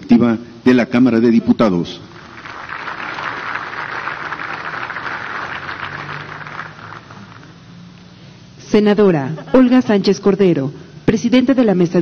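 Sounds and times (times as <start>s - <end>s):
audience applauding: 2.1s - 7.6s.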